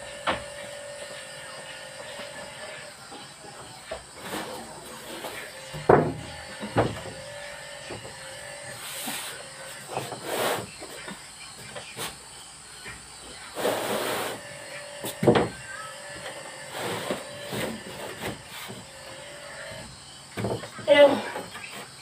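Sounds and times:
board scraping on board: 4.1 - 7.2, 8.7 - 10.9, 13.6 - 15.3, 16.7 - 18.8
wood panel knocks: 5.7 - 7.2.

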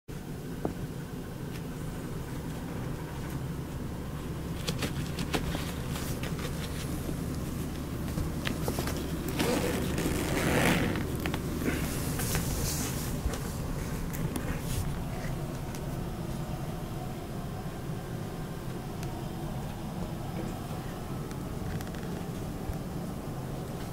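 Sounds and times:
steady low hum: 0.1 - 23.9
paws rustling against fabric: 2.3 - 16.6.

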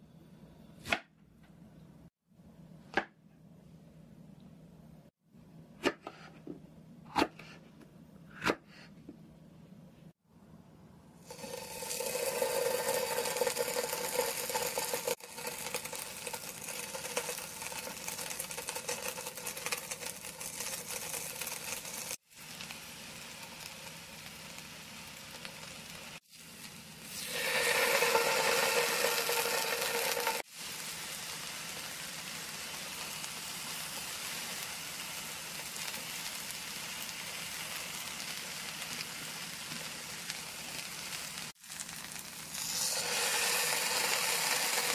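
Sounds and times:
food sizzling in frying pan: 11.2 - 44.9.

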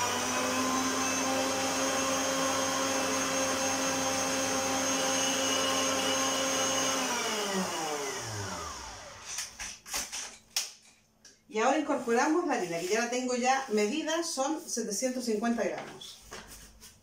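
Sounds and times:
stand mixer motor whining: 0.0 - 9.3.

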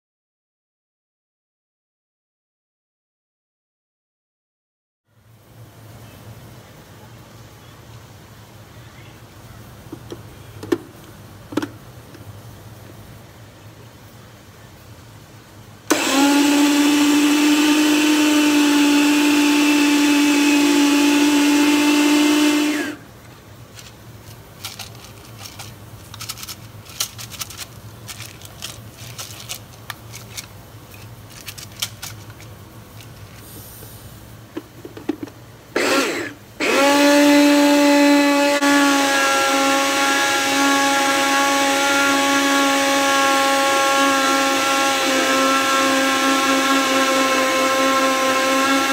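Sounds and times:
blender motor grinding: 15.9 - 23.0, 35.8 - 48.9.

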